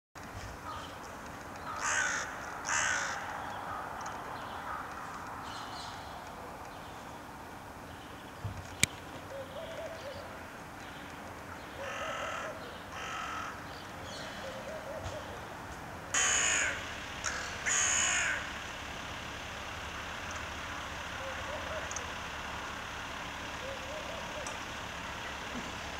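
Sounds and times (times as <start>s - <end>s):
crows cawing: 1.6s - 5.4s, 11.7s - 15.3s, 16.1s - 18.6s.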